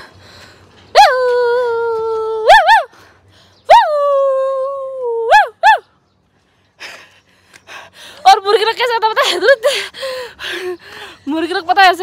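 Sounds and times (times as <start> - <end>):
woman howling like an animal: 1.0 - 2.9
woman yelping: 1.0 - 2.9, 3.7 - 5.8.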